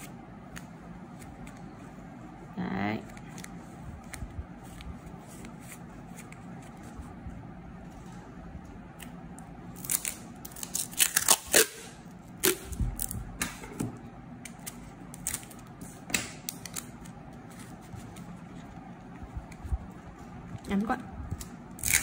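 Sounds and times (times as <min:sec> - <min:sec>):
packing tape ripping off roll: 0:09.8 - 0:13.1, 0:21.8 - 0:22.0
tape crinkling: 0:09.8 - 0:13.1, 0:16.4 - 0:19.8, 0:21.4 - 0:22.0.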